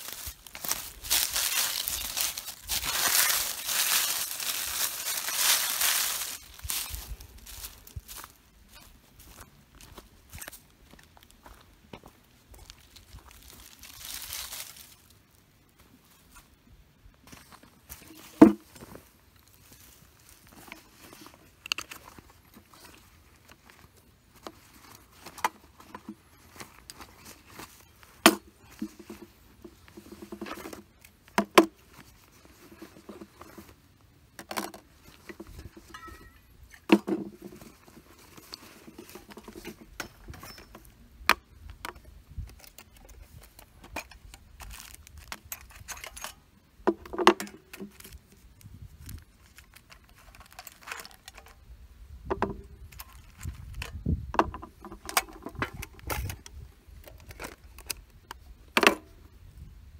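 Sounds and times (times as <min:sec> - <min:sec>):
fabric rustling: 0:00.0 - 0:08.0
metal objects clinking on wood: 0:35.6 - 0:37.3, 0:39.0 - 0:40.9.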